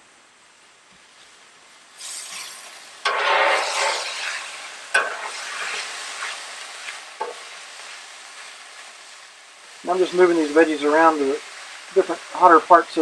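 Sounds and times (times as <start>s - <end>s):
vegetables sizzling on griddle: 0.0s - 13.0s
metal spatula scraping griddle: 2.0s - 7.5s
spatula clicking on griddle: 2.2s - 4.2s, 4.9s - 5.9s, 6.8s - 7.5s.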